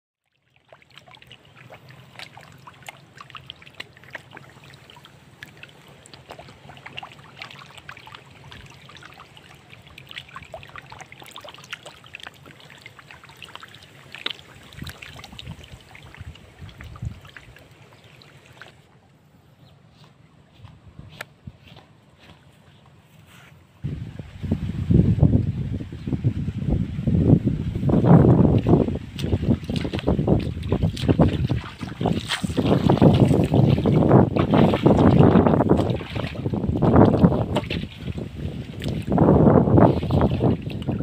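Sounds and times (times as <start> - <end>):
fish splashing in water: 0.2 - 18.9, 28.5 - 41.0
low steady hum: 0.6 - 41.0.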